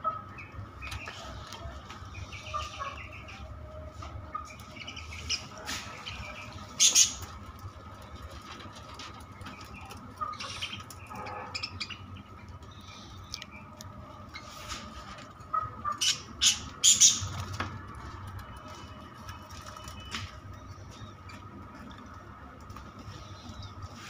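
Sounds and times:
budgerigars chirping: 2.1s - 3.5s, 4.3s - 7.3s, 9.4s - 13.7s, 15.5s - 17.4s.

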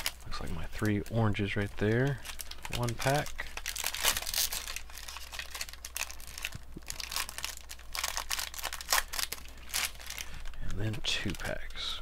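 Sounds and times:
card pack wrappers crinkling: 0.0s - 12.0s.

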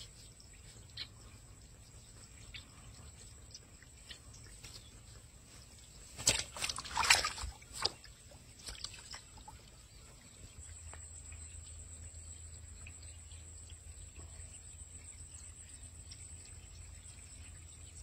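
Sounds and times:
fish splashing in water: 6.0s - 9.7s.

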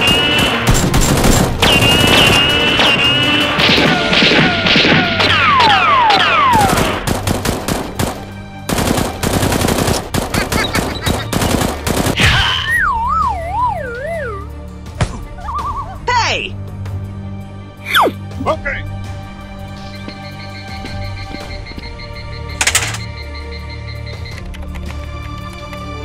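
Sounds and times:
background music: 0.0s - 26.0s
falling whistles: 1.7s - 3.4s.

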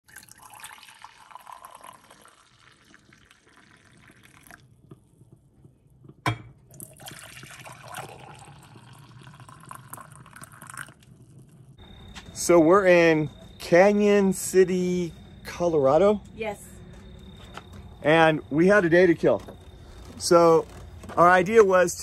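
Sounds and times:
coffee pouring into a mug: 0.0s - 5.3s, 6.7s - 11.7s.

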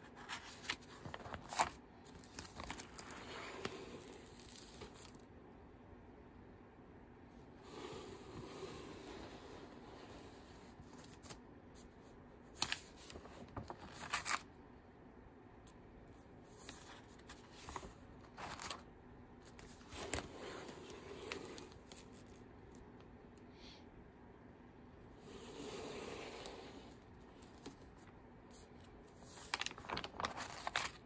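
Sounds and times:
paper pages rustling: 0.0s - 5.2s, 9.1s - 11.9s, 12.5s - 14.5s, 16.5s - 22.8s, 26.9s - 31.0s.

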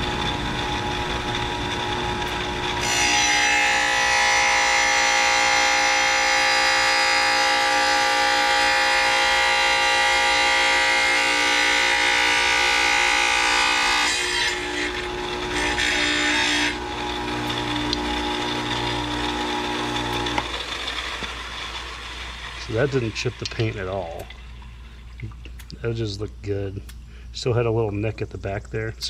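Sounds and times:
tile saw motor running: 0.0s - 24.4s
tile saw blade grinding tile: 1.8s - 23.1s.

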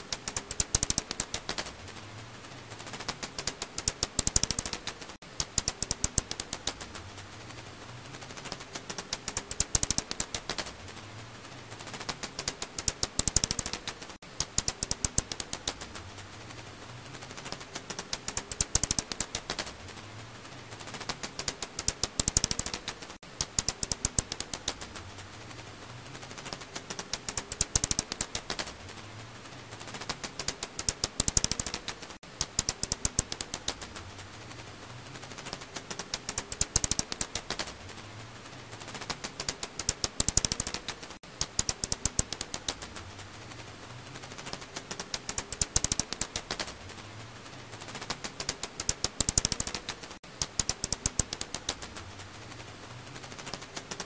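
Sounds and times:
bat calls rapid clicks: 0.0s - 1.8s, 2.8s - 7.0s, 8.2s - 10.8s, 11.8s - 16.0s, 17.2s - 19.8s, 20.8s - 25.0s, 26.3s - 28.8s, 29.8s - 34.0s, 35.2s - 37.8s, 38.8s - 43.0s, 44.2s - 46.8s, 47.8s - 52.0s.

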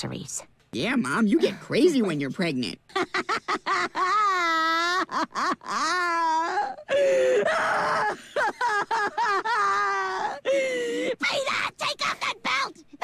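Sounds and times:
woman moaning and wailing: 4.0s - 11.2s.

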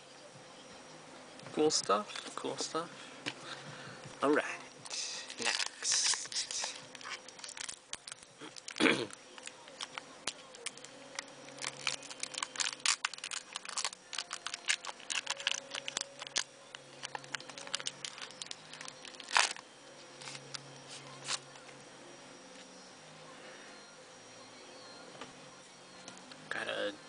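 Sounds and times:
plastic wrapper crinkling and tearing: 4.9s - 20.6s.

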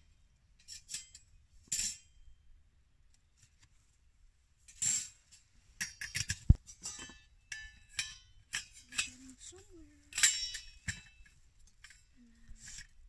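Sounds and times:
metal stove parts clinking: 0.6s - 2.2s, 4.7s - 12.9s.

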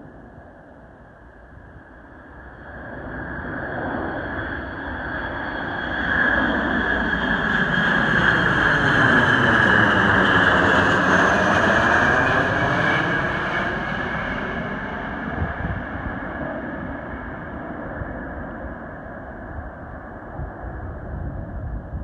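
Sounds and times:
jet passing low overhead: 0.0s - 22.0s.

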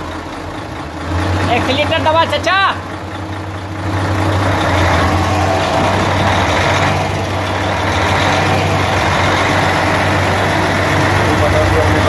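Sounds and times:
truck diesel engine running: 0.0s - 12.0s.

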